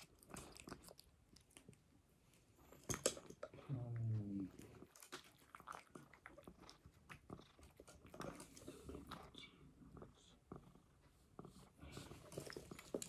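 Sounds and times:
cat chewing: 0:00.0 - 0:03.7, 0:04.4 - 0:13.0
low voice: 0:03.6 - 0:04.7.

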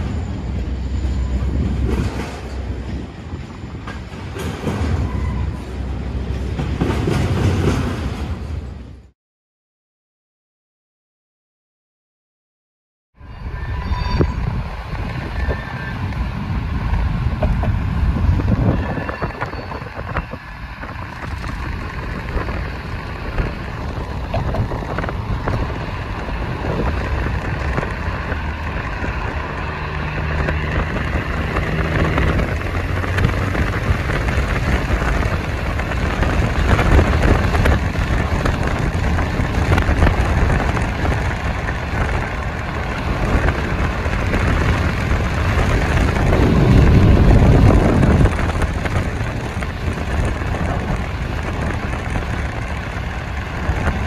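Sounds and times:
tyre and wind rush: 0:00.0 - 0:09.1, 0:13.2 - 0:54.0.

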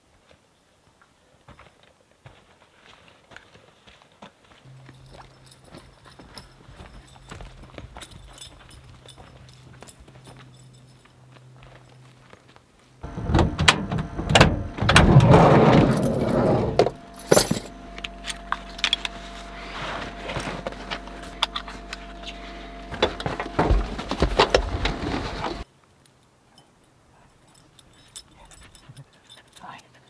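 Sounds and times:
keys jangling: 0:04.7 - 0:11.9, 0:15.8 - 0:19.3, 0:26.0 - 0:30.0
buckles and gear clattering: 0:04.7 - 0:12.1, 0:15.6 - 0:19.6, 0:23.0 - 0:30.0
steady vehicle hum: 0:04.7 - 0:25.7.

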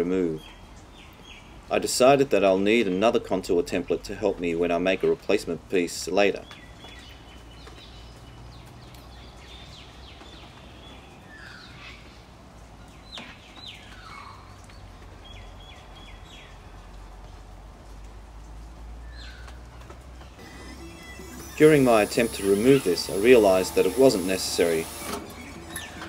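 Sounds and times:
birds chirping: 0:06.1 - 0:12.2, 0:12.8 - 0:17.4, 0:20.2 - 0:26.0.

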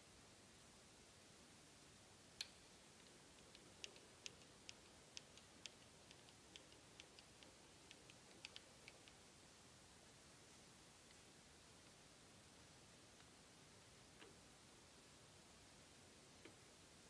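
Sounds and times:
faint sharp clicks: 0:02.4 - 0:09.2.

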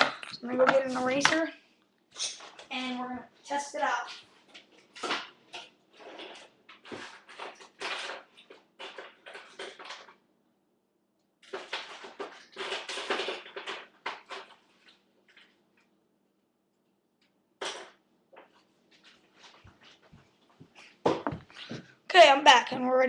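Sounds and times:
rustling and light knocks: 0:18.4 - 0:21.9.

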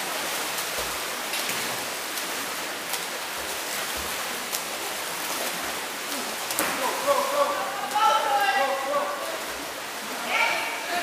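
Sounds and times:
sharp splashes: 0:00.0 - 0:11.0
water splashing in a pool: 0:00.0 - 0:11.0.

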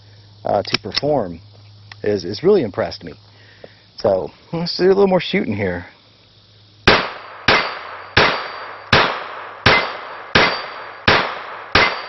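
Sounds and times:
pistol shots: 0:06.9 - 0:12.0
steel plate target ringing: 0:06.9 - 0:12.0.

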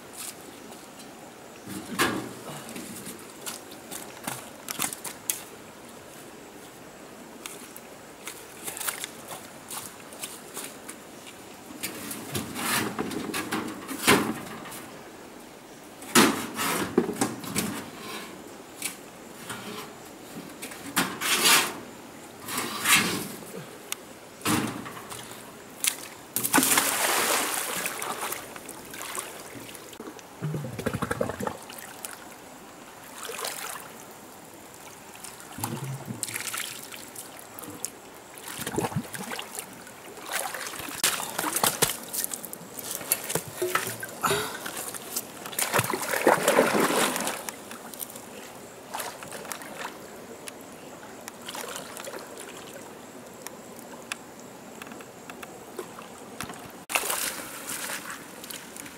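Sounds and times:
faint steady hiss: 0:00.0 - 0:58.9
water splashing: 0:25.8 - 0:32.4, 0:33.0 - 0:34.0, 0:34.8 - 0:48.2, 0:51.4 - 0:52.9.

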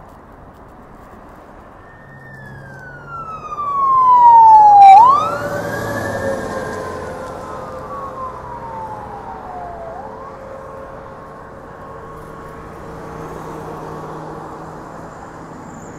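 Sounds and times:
road traffic noise: 0:00.0 - 0:15.9
siren wailing: 0:01.8 - 0:14.0.

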